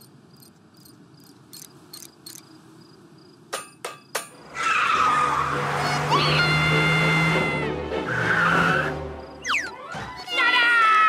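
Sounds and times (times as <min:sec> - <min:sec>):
crickets chirping: 0:00.0 - 0:04.3, 0:09.0 - 0:09.8.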